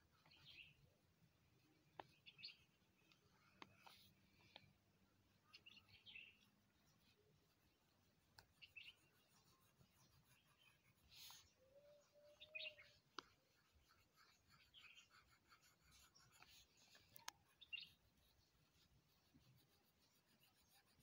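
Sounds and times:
pencil scratching on paper: 7.0 - 11.6, 12.8 - 21.0.

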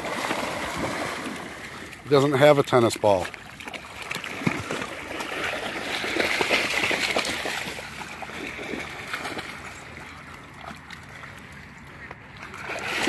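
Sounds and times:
dogs splashing through water: 0.0 - 13.0.

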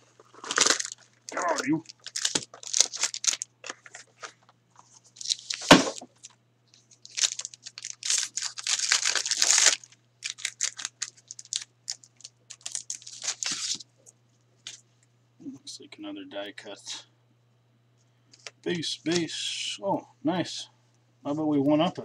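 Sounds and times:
wrapper crinkling: 0.0 - 13.8
card pack wrapper tearing: 0.2 - 4.3, 5.2 - 6.4, 7.0 - 13.8.

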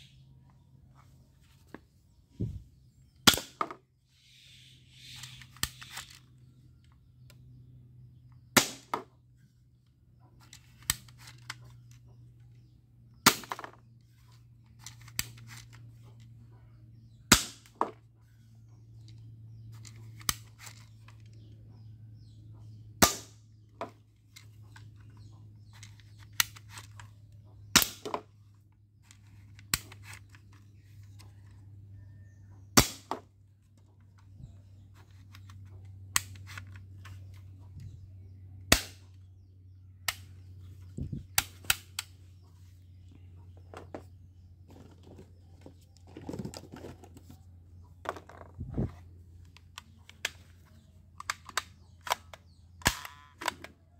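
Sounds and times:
low steady hum: 0.0 - 53.9
toy pistol firing snap: 38.7 - 39.1, 51.2 - 53.7
plastic clicks from cocking: 49.5 - 53.8.

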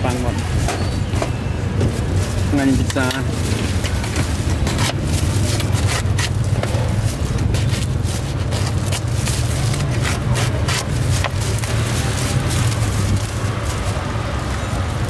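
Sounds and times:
low traffic rumble: 0.0 - 15.0
crusty bread crackling: 1.7 - 15.0.

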